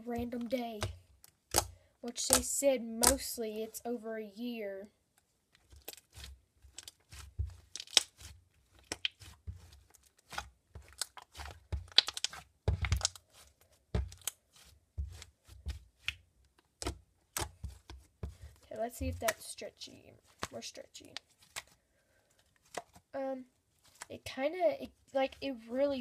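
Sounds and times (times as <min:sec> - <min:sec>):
slime squelching: 0:00.0 - 0:03.7, 0:05.6 - 0:26.0
slime crackling clicks: 0:11.9 - 0:12.4.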